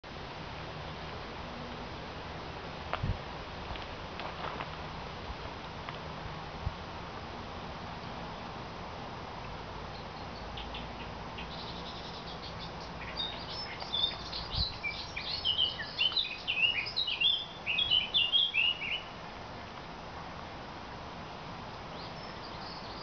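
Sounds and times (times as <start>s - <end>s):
faint background hiss: 0.0s - 23.0s
songbird chirps and trills: 9.4s - 19.2s, 21.8s - 23.0s.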